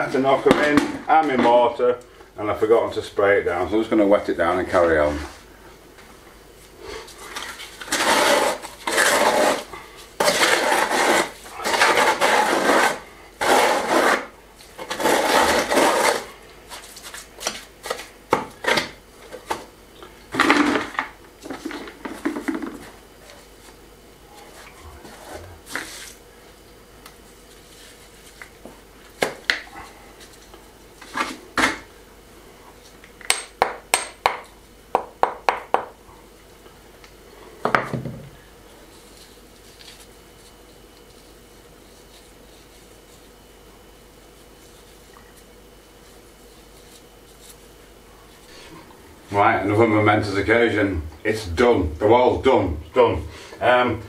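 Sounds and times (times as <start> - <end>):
trowel scraping metal bucket: 7.8 - 16.3.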